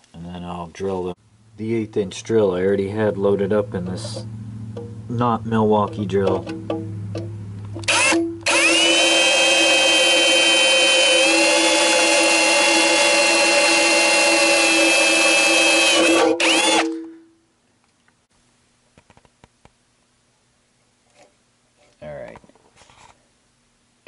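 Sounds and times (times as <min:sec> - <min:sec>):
power drill drilling into metal: 0:07.8 - 0:17.0.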